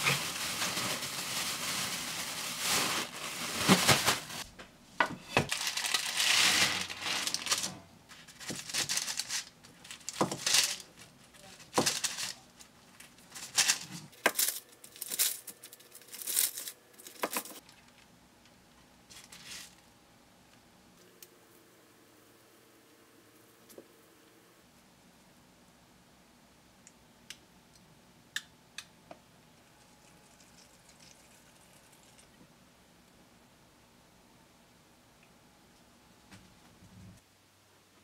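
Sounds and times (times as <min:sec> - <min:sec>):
plastic bag crinkling: 0:00.0 - 0:04.5, 0:05.4 - 0:18.0, 0:19.1 - 0:19.8.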